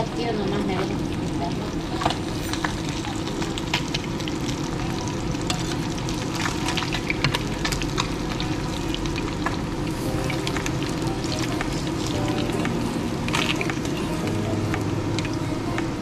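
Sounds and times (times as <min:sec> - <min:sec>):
fish sizzling in hot oil: 0:00.0 - 0:16.0
oil crackling and popping: 0:00.0 - 0:16.0.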